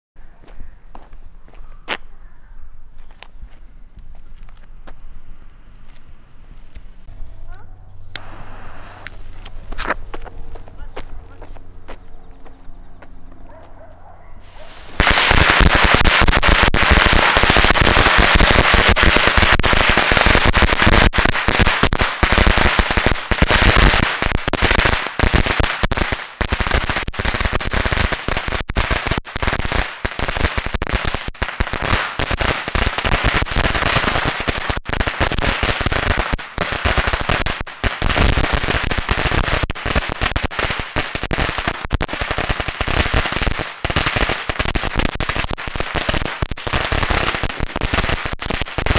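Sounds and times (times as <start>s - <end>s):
firecrackers crackling: 7.9s - 12.0s, 14.4s - 48.9s.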